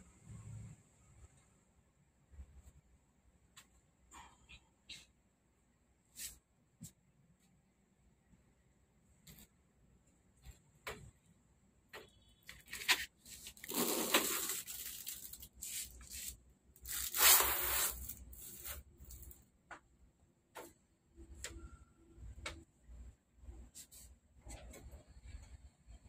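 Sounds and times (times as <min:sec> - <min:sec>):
plastic sheet rustling: 0:12.6 - 0:19.3.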